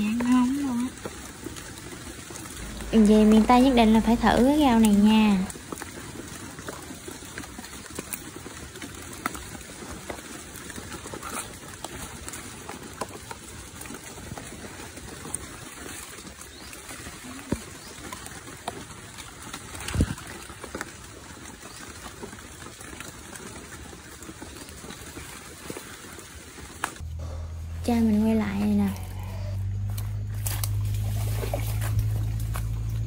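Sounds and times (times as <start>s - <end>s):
trickling water: 0.0s - 27.0s, 29.8s - 33.0s
wet foliage rustling: 0.0s - 33.0s
small stems snapping: 29.8s - 33.0s.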